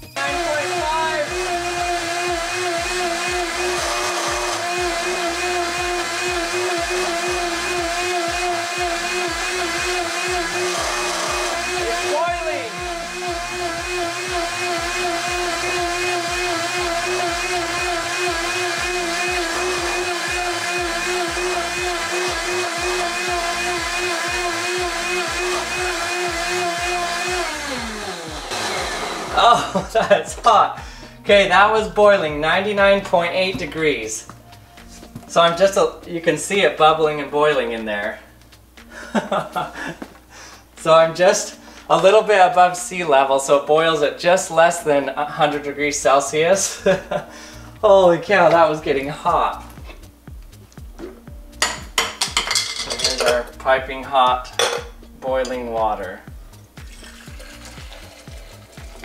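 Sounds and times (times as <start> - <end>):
blender running: 0.0 - 29.9, 56.8 - 59.0
background music with beat: 0.0 - 36.7, 37.4 - 42.0, 45.4 - 59.0.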